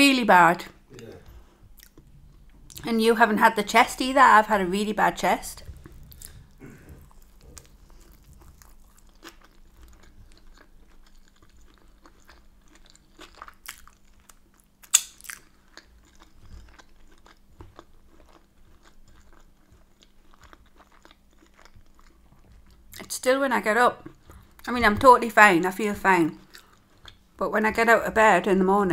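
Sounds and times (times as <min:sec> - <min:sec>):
person chewing food: 0:00.9 - 0:02.9, 0:05.6 - 0:23.0, 0:24.0 - 0:24.7, 0:26.3 - 0:27.4
wet mouth clicks and smacks: 0:14.8 - 0:15.4.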